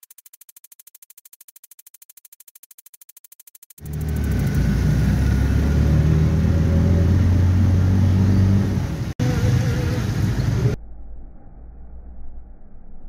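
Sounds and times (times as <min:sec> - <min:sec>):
small vehicle engine running: 0:03.0 - 0:10.8
muffled traffic: 0:03.8 - 0:10.8.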